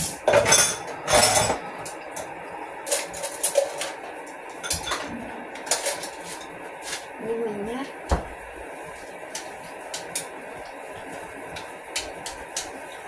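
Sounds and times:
dishes clinking in a sink: 0.2 - 1.6, 4.6 - 6.1.

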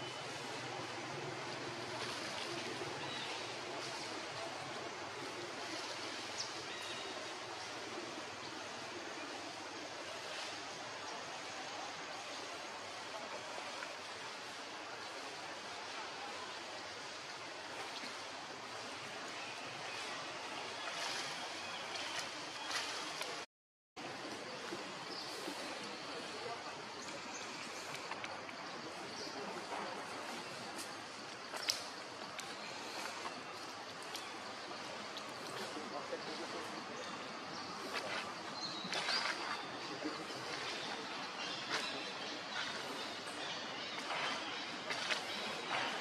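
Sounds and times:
outdoor ambient rush: 0.0 - 23.4, 24.0 - 46.0.

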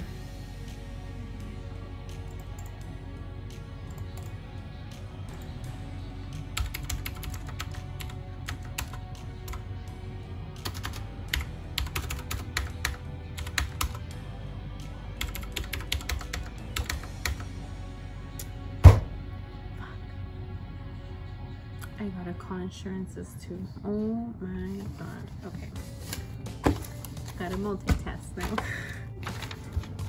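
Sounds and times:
background music: 0.0 - 30.0
computer keyboard typing: 6.6 - 9.6, 10.6 - 14.0, 15.2 - 17.4.

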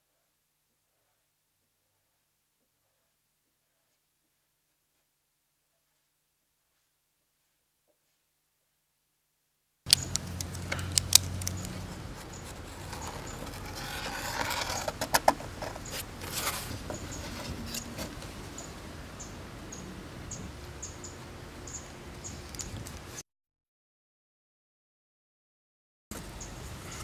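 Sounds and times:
scratchy scrape: 11.2 - 18.4
wooden boards clicking and knocking: 12.4 - 18.2.

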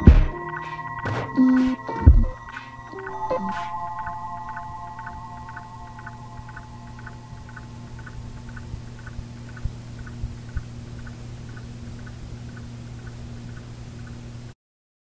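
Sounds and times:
low thumps: 0.0 - 2.5
low steady hum: 0.0 - 14.5
soft regular ticking: 4.5 - 14.4.

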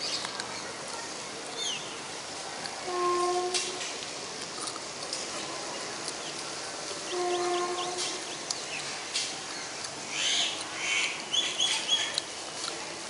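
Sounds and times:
birds chirping and calling: 7.0 - 8.9.

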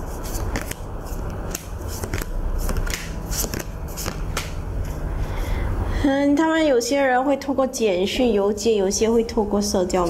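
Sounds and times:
steady low hum: 0.0 - 10.0
playing cards clicking and snapping: 0.2 - 4.6.

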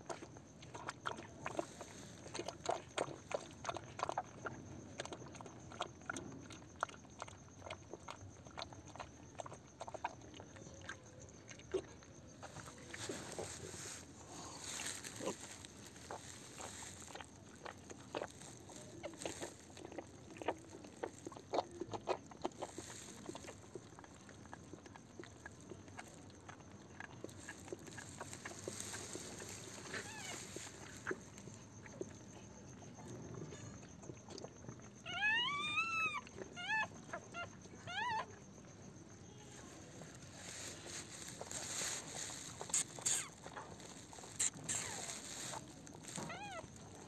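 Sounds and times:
dog licking and chewing: 0.0 - 33.2, 39.5 - 47.0
puppy squealing: 46.1 - 46.6.

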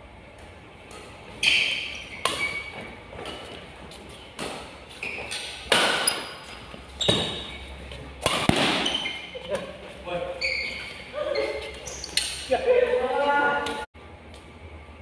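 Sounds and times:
rackets hitting shuttlecock: 0.4 - 7.6, 8.2 - 9.8.

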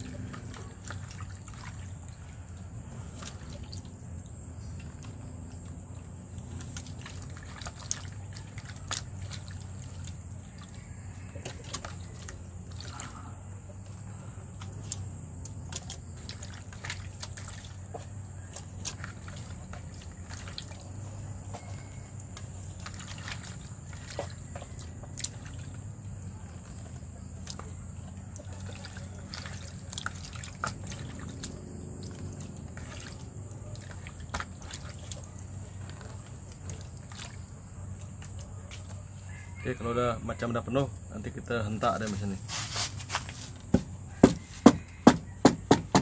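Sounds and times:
small clicks and splashes: 0.0 - 39.6
marinade dripping and squelching: 0.0 - 45.6.

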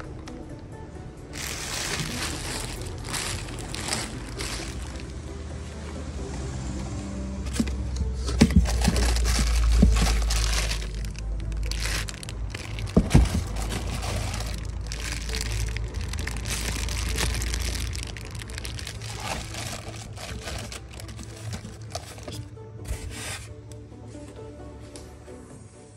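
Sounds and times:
plastic bags crinkling: 1.4 - 5.2, 7.5 - 22.5.

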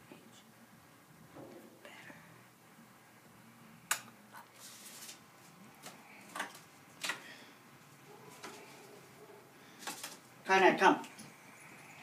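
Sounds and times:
paper rustle: 4.6 - 7.2, 9.8 - 10.3.

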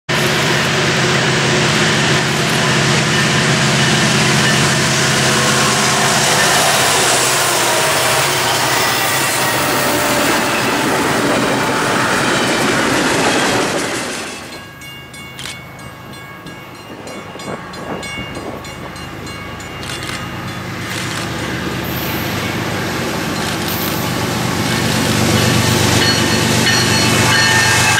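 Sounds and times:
distant train approaching: 0.1 - 27.9
locomotive engine noise: 0.1 - 27.9
train wheels clattering on rails: 0.1 - 27.9.

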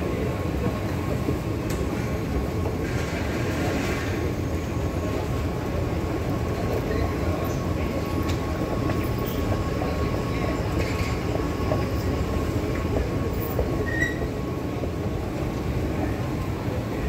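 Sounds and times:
metro station rumble: 0.0 - 17.0.

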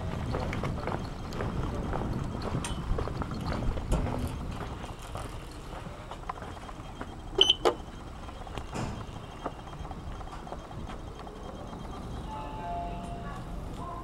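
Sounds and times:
footsteps on platform: 0.0 - 12.1
short high beep: 7.2 - 7.9.

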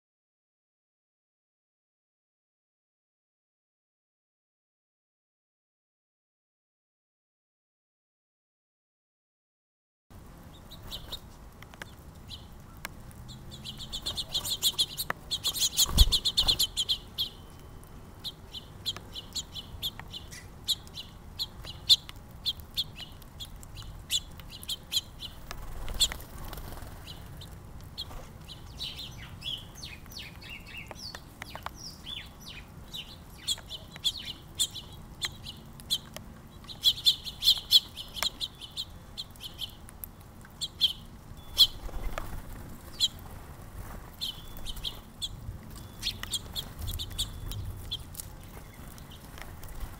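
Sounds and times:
small birds chirping: 10.3 - 49.9
birds chattering: 10.4 - 49.9.

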